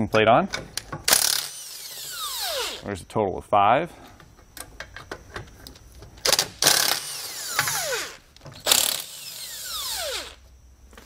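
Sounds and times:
motor spinning down whine: 9.0 - 10.5.

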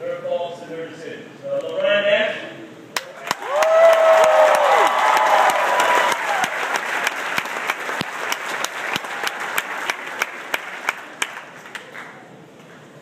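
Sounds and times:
crowd applauding: 3.1 - 12.3
crowd cheering: 3.2 - 11.9.

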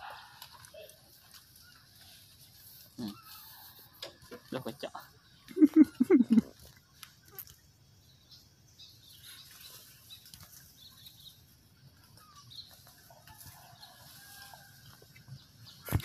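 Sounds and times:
small ticks: 6.6 - 7.7.

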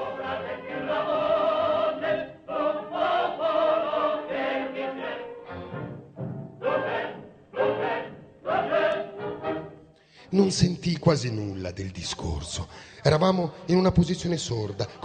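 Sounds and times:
choir singing: 0.0 - 6.0, 6.6 - 9.8.

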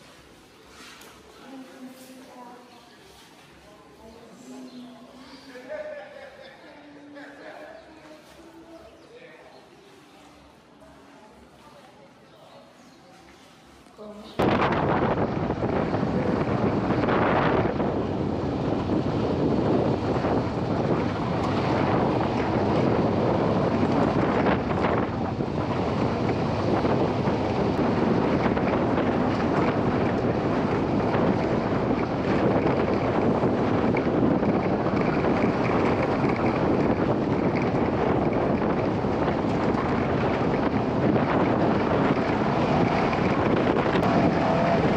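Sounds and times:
wind buffeting microphone: 14.2 - 44.9
engine and tyre rumble: 14.5 - 44.9.

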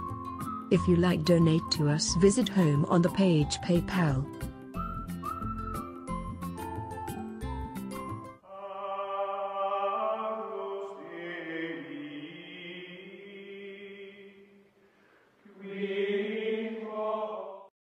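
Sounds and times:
choral chanting: 8.4 - 14.6, 15.4 - 17.7.

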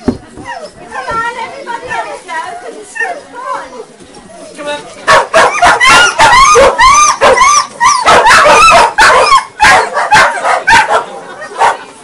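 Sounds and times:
dog yipping: 5.1 - 11.0.

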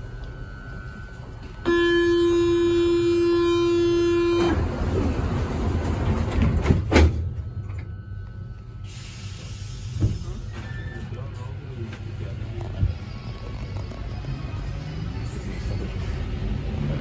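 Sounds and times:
train carriage low rumble: 0.0 - 17.0
door-closing warning buzz: 1.4 - 4.8.

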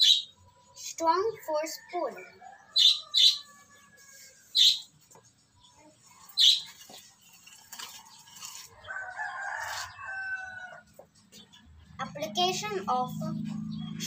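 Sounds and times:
rooster crowing: 8.8 - 10.9.

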